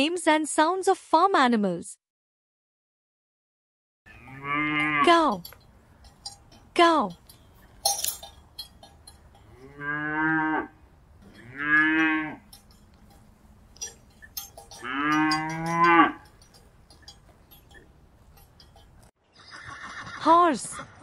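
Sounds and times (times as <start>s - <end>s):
cow mooing: 4.1s - 5.5s, 9.3s - 12.8s, 13.8s - 16.6s.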